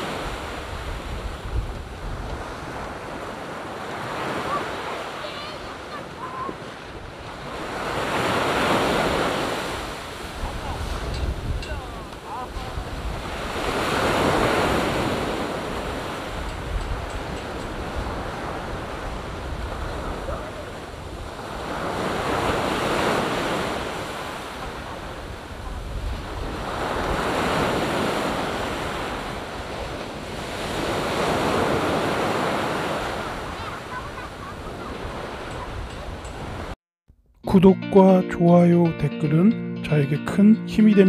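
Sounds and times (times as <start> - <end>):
wind rumble on microphone: 0.0 - 3.5, 10.2 - 23.0, 23.6 - 33.6
sea waves breaking on beach: 0.0 - 36.8.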